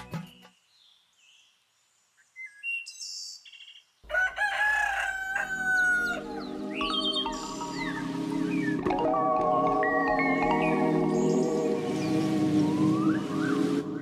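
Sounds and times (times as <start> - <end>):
rooster crowing: 4.1 - 6.8
high bird chirps: 5.7 - 8.9.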